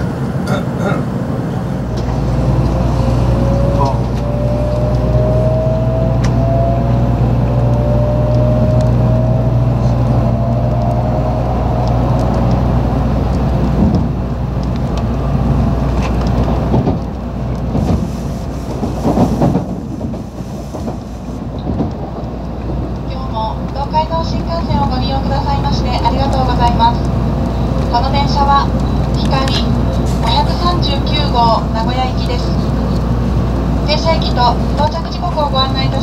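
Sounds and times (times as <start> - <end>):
low hum and rumble: 0.0 - 36.0
passing train rushing: 0.0 - 36.0
train motor whine: 1.9 - 21.3.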